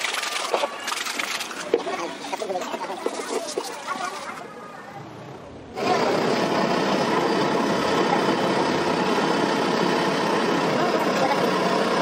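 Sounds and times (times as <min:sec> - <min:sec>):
steady engine-like running noise: 0:05.6 - 0:12.0.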